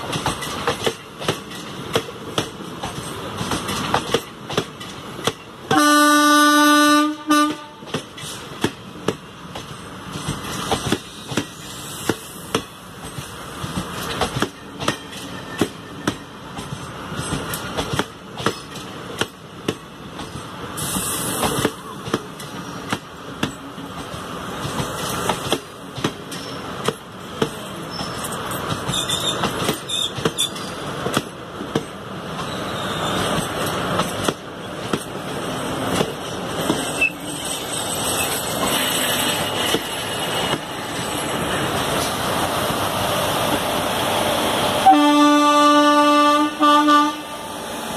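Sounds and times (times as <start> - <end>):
train wheels clicking over rail joints: 0.0 - 5.8, 7.6 - 44.8
train horn: 5.7 - 7.9, 44.8 - 47.6.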